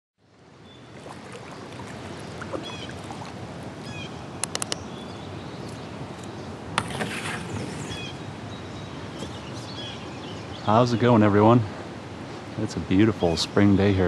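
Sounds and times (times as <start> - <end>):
wind and water rushing: 0.2 - 14.0
bird chirps: 1.6 - 3.0, 3.8 - 6.5, 7.5 - 10.9
sharp clicks: 4.4 - 4.8.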